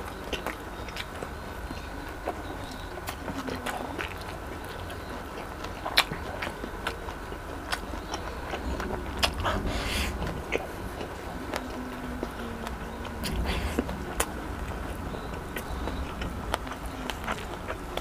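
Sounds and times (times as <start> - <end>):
chewing with wet mouth clicks: 0.0 - 18.0.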